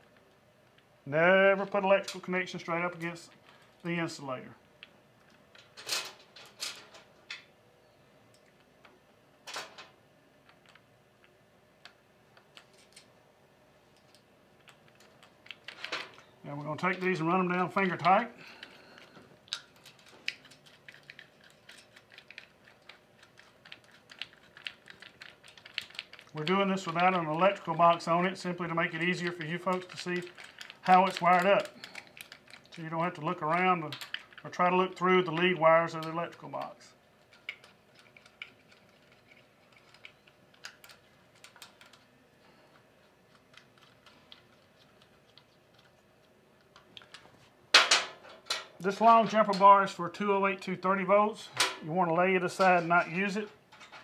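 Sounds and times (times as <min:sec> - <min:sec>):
light clicks of small nuts: 0:13.9 - 0:47.3.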